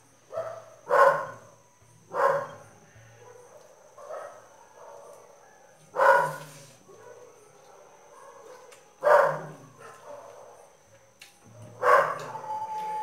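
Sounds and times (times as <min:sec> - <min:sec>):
dog barking: 0:00.3 - 0:01.5, 0:02.1 - 0:02.6, 0:03.2 - 0:10.7, 0:11.7 - 0:12.4.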